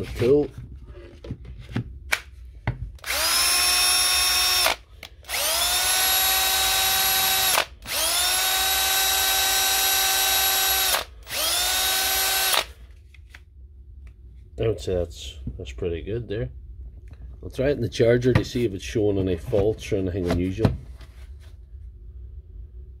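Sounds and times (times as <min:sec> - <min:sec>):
cordless drill whining: 0:03.0 - 0:12.8.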